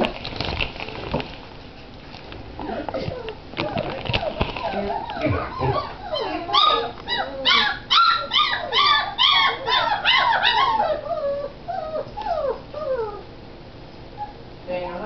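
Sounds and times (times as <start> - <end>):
puppy whining: 2.6 - 13.4, 14.1 - 14.5
puppy whimpering yelps: 4.2 - 13.3, 14.2 - 14.4.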